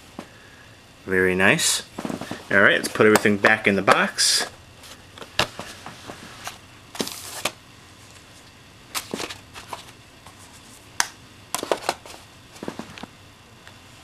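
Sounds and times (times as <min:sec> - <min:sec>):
paper rustling: 0:05.6 - 0:07.6, 0:08.9 - 0:10.8.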